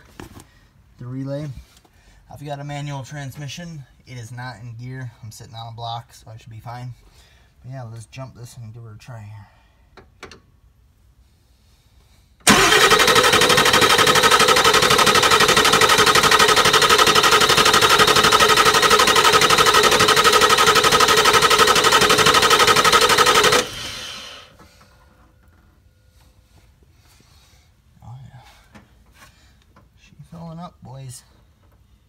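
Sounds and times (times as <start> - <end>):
diesel engine starter cranking: 12.4 - 24.6.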